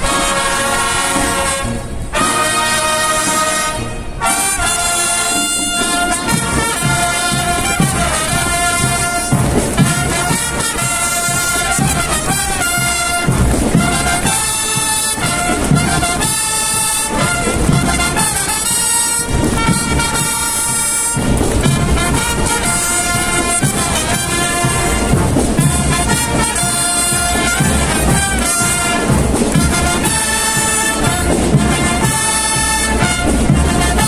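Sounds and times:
brass chords: 0.0s - 34.0s
marching drums beat: 0.0s - 34.0s.

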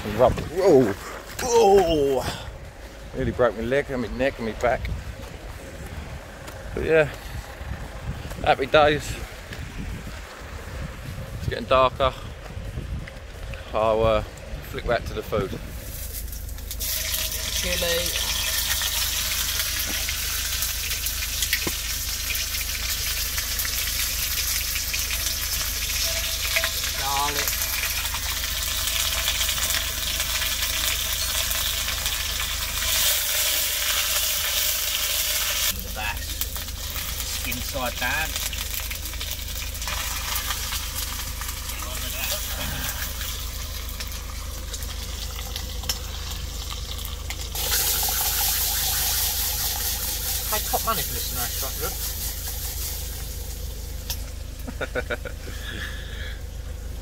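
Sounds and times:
oil popping and crackling: 0.0s - 2.2s, 15.7s - 55.8s
chilli sizzling in a pan: 15.9s - 54.4s.

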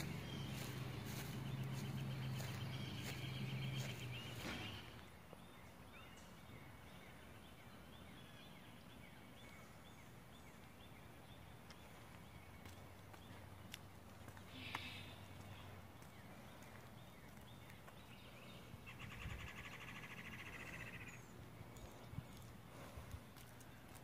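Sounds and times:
small birds chirping: 0.0s - 24.0s.

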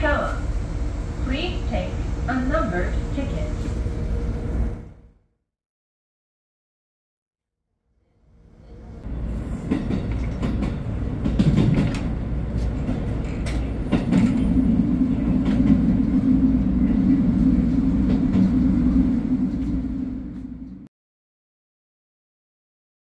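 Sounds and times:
railcar running rumble: 0.0s - 5.1s, 8.2s - 20.9s.

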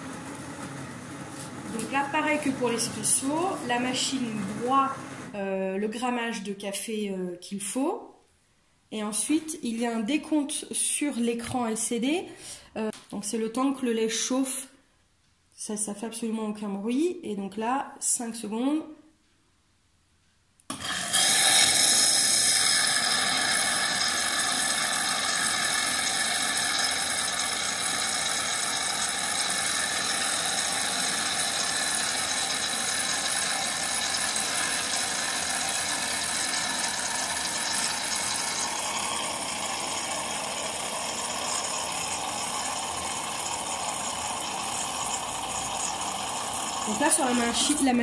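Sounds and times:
coffee machine frothing milk: 0.0s - 5.4s, 20.7s - 48.0s.

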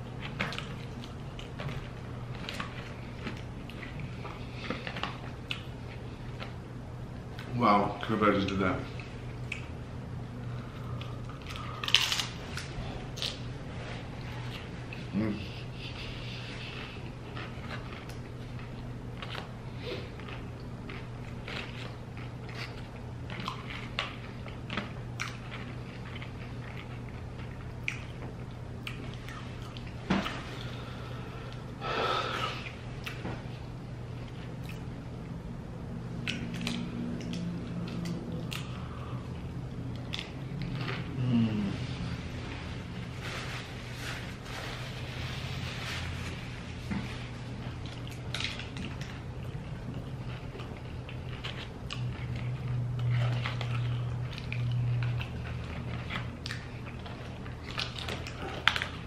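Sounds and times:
steady low hum: 0.0s - 59.0s
lip smacks: 9.4s - 9.8s, 27.8s - 30.4s
chewing crunchy chips: 10.4s - 13.5s, 16.0s - 31.6s, 36.1s - 41.8s, 47.2s - 59.0s
wet mouth eating sounds: 19.2s - 30.8s, 47.6s - 59.0s.

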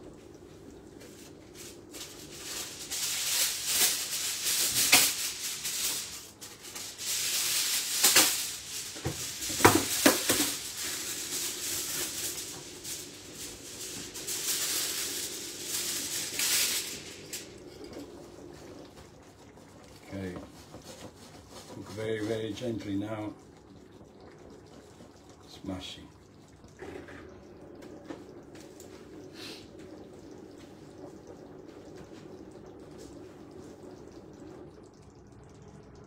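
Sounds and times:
pops and spatters: 2.0s - 12.6s
sauce sizzling in frying pan: 2.2s - 20.4s, 28.8s - 29.7s.

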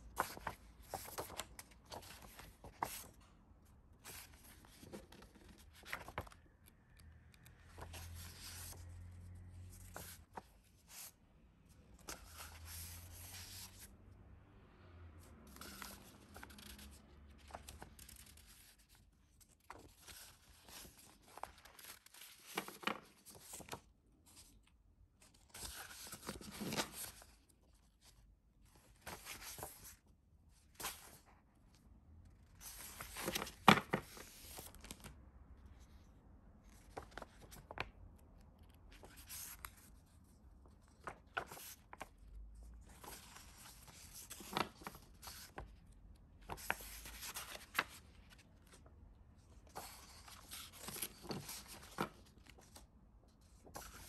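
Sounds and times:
paper rustling and crinkling: 0.1s - 3.3s, 4.0s - 6.5s, 9.7s - 11.1s, 15.5s - 24.6s, 25.2s - 28.1s, 32.4s - 35.1s, 38.6s - 45.8s, 46.4s - 48.9s, 49.5s - 54.0s.

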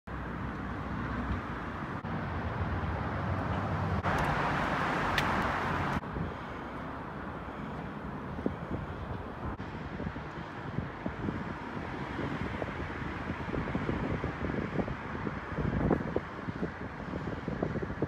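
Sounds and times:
road traffic rumble: 0.1s - 18.0s
wind on microphone: 7.9s - 18.0s.

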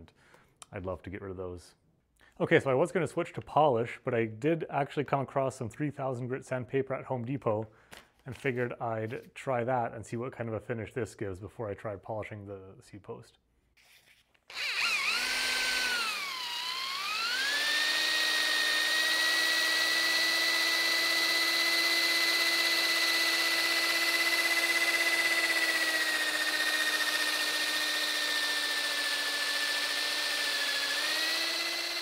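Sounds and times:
electric drill whine: 14.5s - 32.0s.

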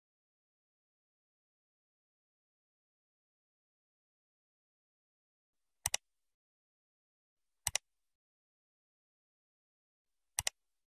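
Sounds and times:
computer mouse clicks: 5.8s - 6.1s, 7.6s - 7.9s, 10.4s - 10.6s.

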